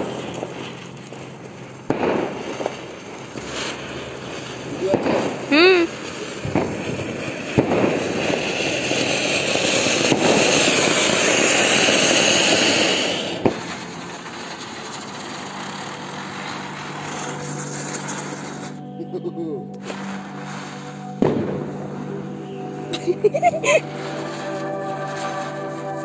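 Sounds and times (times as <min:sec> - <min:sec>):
firework pops: 0:00.0 - 0:18.7
firework crack: 0:00.0 - 0:26.0
firework hissing: 0:00.0 - 0:26.0.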